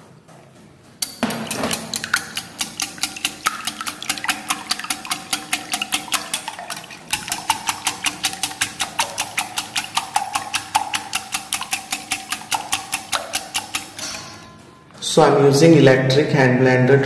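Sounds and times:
whisk beating in glass bowl: 1.0 - 14.6.

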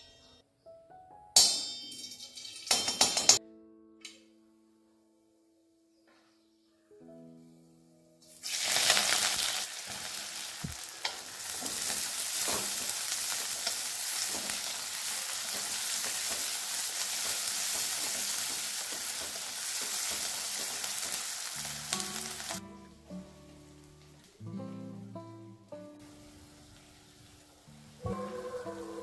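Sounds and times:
onions sizzling in hot oil: 8.2 - 24.3, 25.8 - 29.0.

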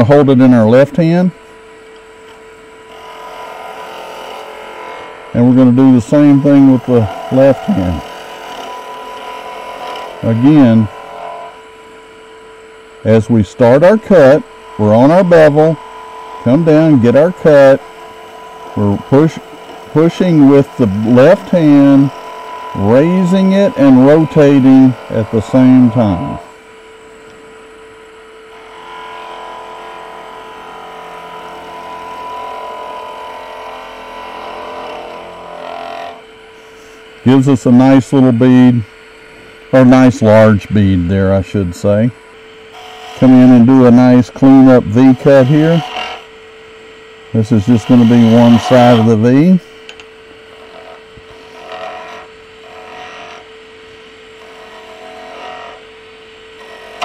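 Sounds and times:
lathe hum: 0.0 - 57.0
chisel cutting wood on lathe: 2.9 - 26.9, 28.3 - 53.6, 54.2 - 57.0
chisel scraping wood: 14.2 - 26.5, 42.8 - 46.2, 47.4 - 49.2.

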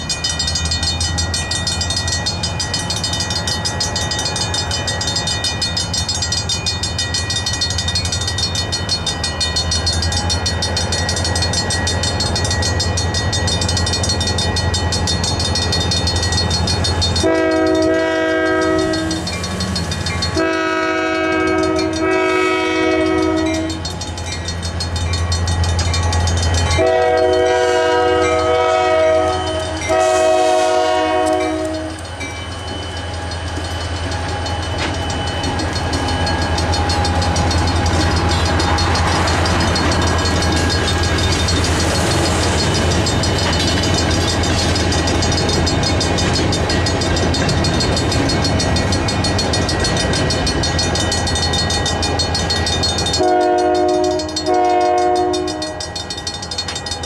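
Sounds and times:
diesel locomotive rumble: 0.0 - 57.0
railroad crossing bell ringing: 0.0 - 57.0
locomotive air horn blasts: 17.2 - 19.3, 20.3 - 23.8, 26.7 - 32.1, 53.2 - 55.8.

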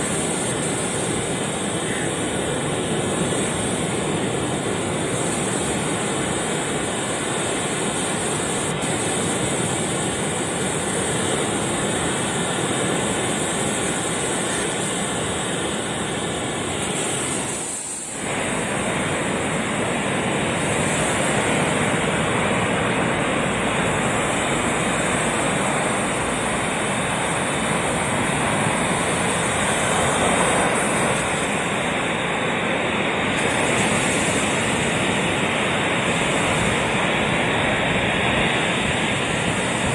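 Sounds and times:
ocean surf breaking on beach: 0.0 - 39.9.

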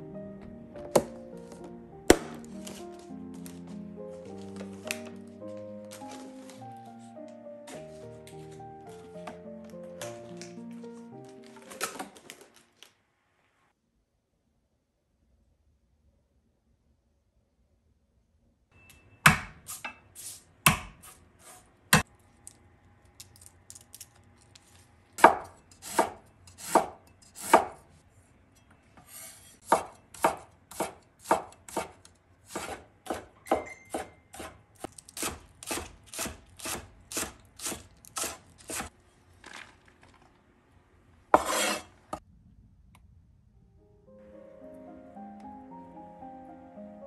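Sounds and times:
knife chopping on cutting board: 2.1 - 2.8, 19.3 - 20.0, 20.7 - 22.0, 25.2 - 27.8, 29.0 - 38.9, 41.4 - 41.9.

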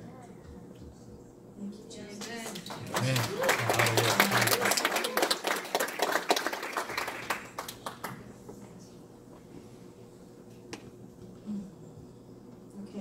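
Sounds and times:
congregation applauding: 2.4 - 8.3.

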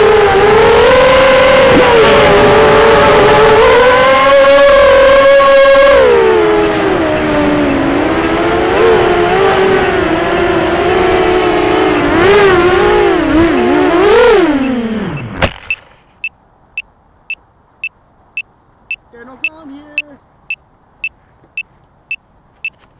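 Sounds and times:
quadcopter motors whining: 0.0 - 15.4.

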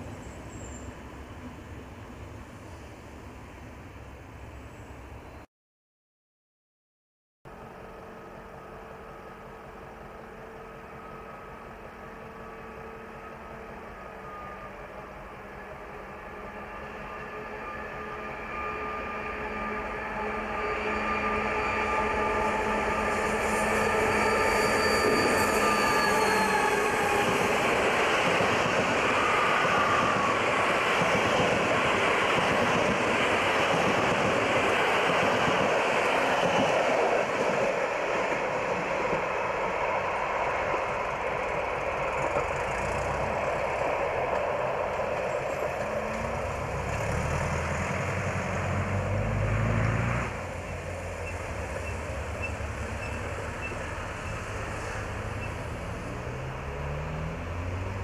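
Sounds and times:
diesel locomotive engine drone: 0.0 - 5.5, 7.5 - 58.0
train coaches rolling on rails: 7.6 - 58.0
road vehicle engine: 41.8 - 43.7, 45.6 - 58.0.

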